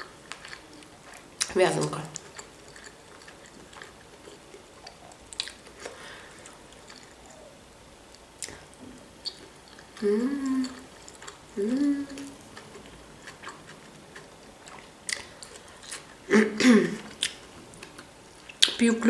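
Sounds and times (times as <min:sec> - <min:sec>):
person chewing food: 0:00.0 - 0:16.3, 0:17.0 - 0:18.8
closed-mouth hums: 0:04.8 - 0:14.7.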